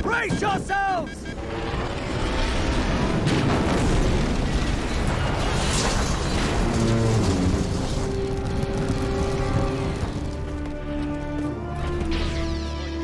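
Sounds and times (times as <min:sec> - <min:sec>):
explosions: 0:01.4 - 0:10.6
heavy rumble of impact and debris: 0:01.6 - 0:12.3
orchestral score: 0:06.5 - 0:13.0.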